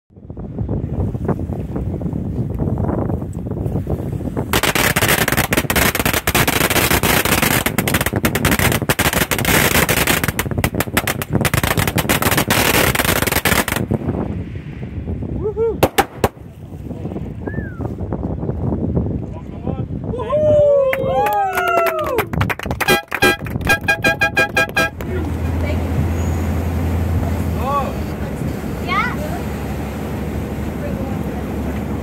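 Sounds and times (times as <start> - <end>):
firecrackers crackling: 4.5 - 14.0, 15.8 - 16.5.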